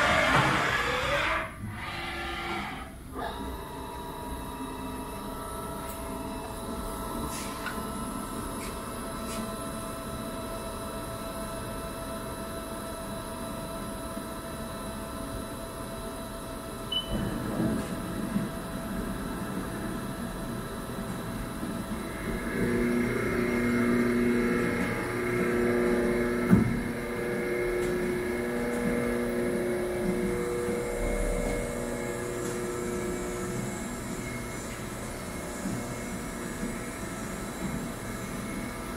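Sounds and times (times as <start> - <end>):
low mechanical rumble: 16.6 - 38.9
rough machine rumble: 17.2 - 38.9
milling machine spindle whine: 18.7 - 38.9.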